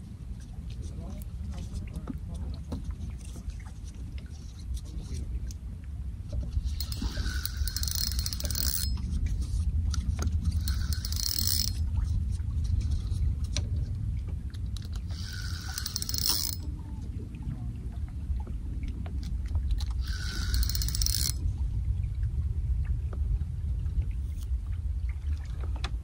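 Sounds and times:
steady low rumble: 0:04.9 - 0:15.8, 0:16.6 - 0:20.6, 0:21.3 - 0:26.0
fishing reel whirring: 0:06.6 - 0:09.6, 0:10.4 - 0:11.8, 0:14.8 - 0:16.7, 0:19.8 - 0:21.4.

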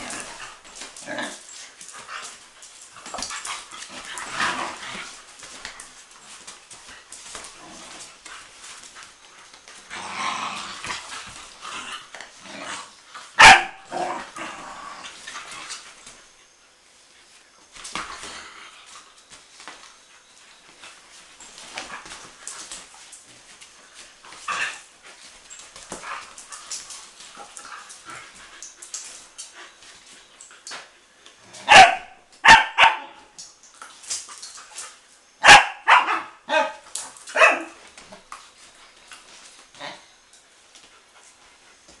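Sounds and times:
dogs scuffling: 0:00.0 - 0:42.0
dogs barking sharply: 0:13.4 - 0:14.0, 0:31.6 - 0:33.2, 0:35.4 - 0:37.8.

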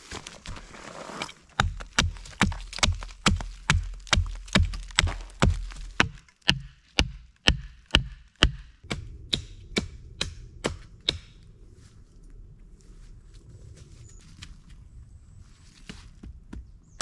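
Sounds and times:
tool striking wood: 0:01.6 - 0:11.3.

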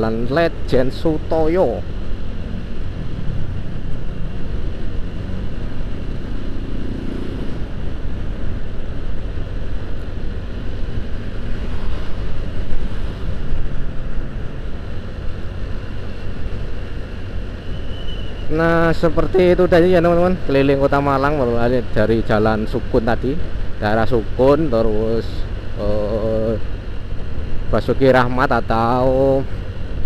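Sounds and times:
road noise: 0:00.0 - 0:30.0
motorcycle engine: 0:01.8 - 0:17.4.

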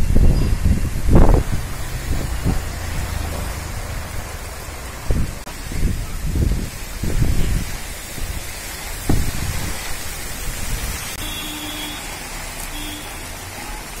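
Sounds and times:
wind gusts rumbling on microphone: 0:00.0 - 0:11.3
heavy rain pouring: 0:00.0 - 0:14.0.

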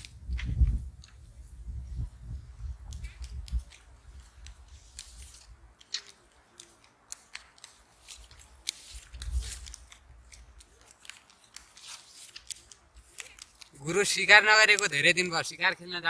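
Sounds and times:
playing cards snapping and clicking: 0:00.0 - 0:01.2, 0:02.8 - 0:13.8, 0:14.6 - 0:15.0.

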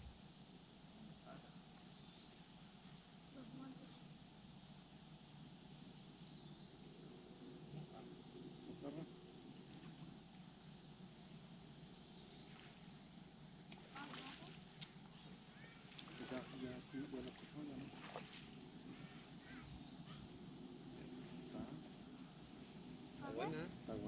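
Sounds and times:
insects chirring: 0:00.0 - 0:24.0.

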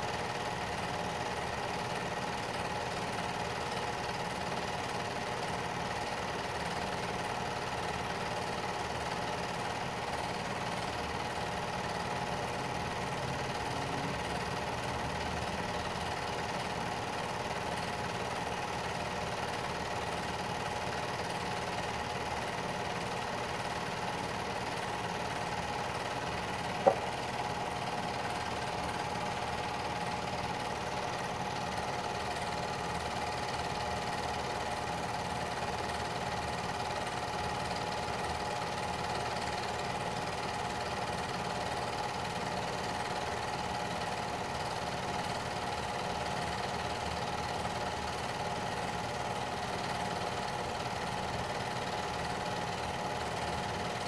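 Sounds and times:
film projector humming and whirring: 0:00.0 - 0:54.0.

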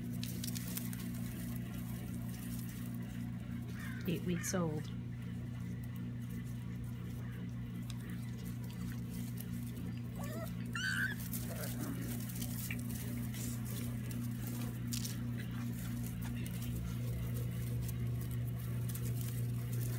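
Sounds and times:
puppies scuffling: 0:00.0 - 0:19.9
steady low hum: 0:00.0 - 0:19.9
puppy squealing and yelping: 0:10.2 - 0:11.8.

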